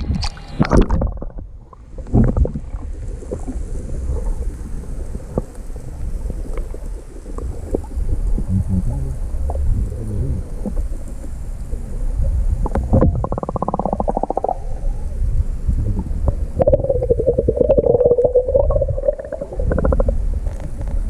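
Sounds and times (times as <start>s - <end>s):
faint underwater clicks: 0.0s - 8.5s, 9.2s - 21.0s
muffled underwater rumble: 0.0s - 21.0s
water splashing: 9.3s - 15.2s, 16.0s - 21.0s.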